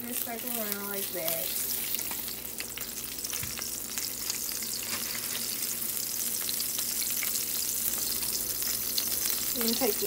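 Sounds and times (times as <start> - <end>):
butter sizzling in skillet: 0.0 - 10.0.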